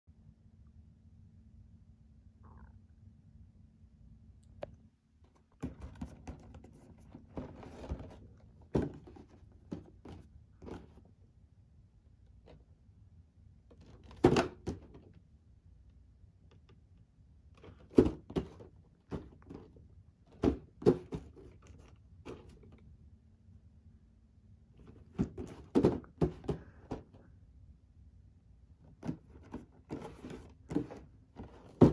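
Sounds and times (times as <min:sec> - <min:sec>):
cardboard scraping and rustling: 0:05.6 - 0:11.0, 0:17.6 - 0:22.8, 0:24.8 - 0:27.1, 0:29.0 - 0:31.9
cardboard box thunking: 0:07.3 - 0:10.8, 0:17.9 - 0:19.6, 0:20.3 - 0:21.5, 0:25.1 - 0:27.1, 0:29.0 - 0:31.9.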